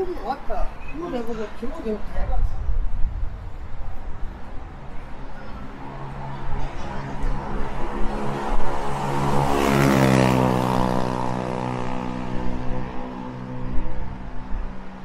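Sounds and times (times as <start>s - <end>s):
vehicle engine passing by: 5.4s - 14.5s.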